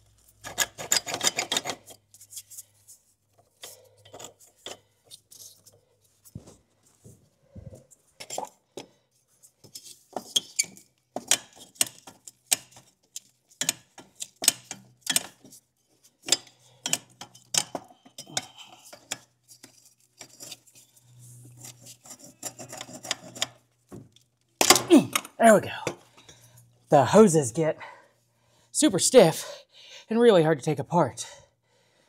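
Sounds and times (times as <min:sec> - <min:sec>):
rubber hoses clicking and rubbing: 0:07.7 - 0:25.4.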